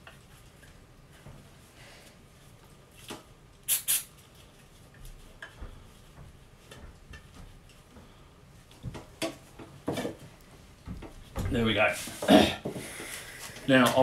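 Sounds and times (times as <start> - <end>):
aerosol spray squirts: 3.7 - 4.2.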